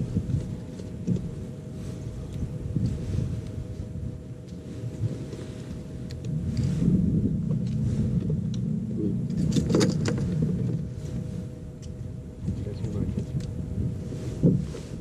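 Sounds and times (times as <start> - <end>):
faint constant hum: 0.0 - 15.0
wind buffeting microphone: 0.0 - 15.0.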